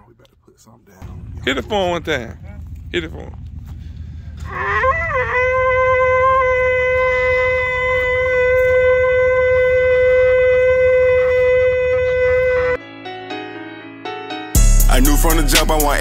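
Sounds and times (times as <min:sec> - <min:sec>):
hunting horn long note: 0:03.9 - 0:12.8.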